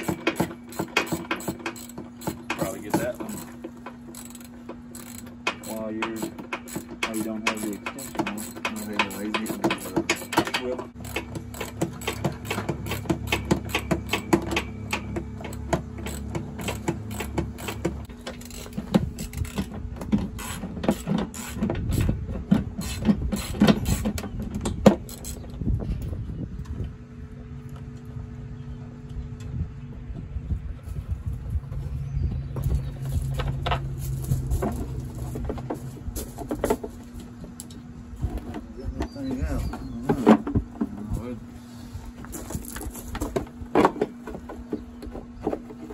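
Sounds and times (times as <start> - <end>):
ratchet wrench clicking: 0.0 - 19.7, 20.4 - 22.1
tools working on metal parts: 0.0 - 25.6
steady low hum: 0.0 - 45.9.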